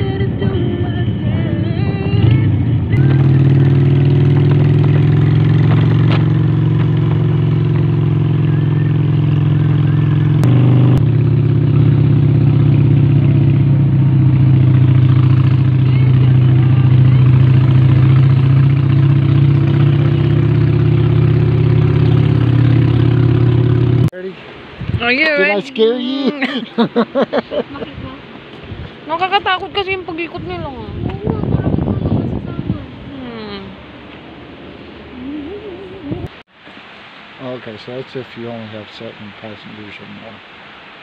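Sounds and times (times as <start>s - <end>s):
motorcycle engine drone: 0.0s - 24.1s.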